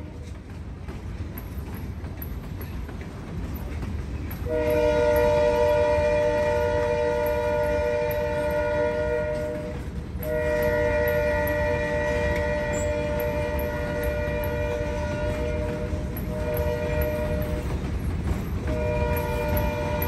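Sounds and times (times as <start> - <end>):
locomotive air horn blasts: 4.4 - 17.9, 18.6 - 20.0.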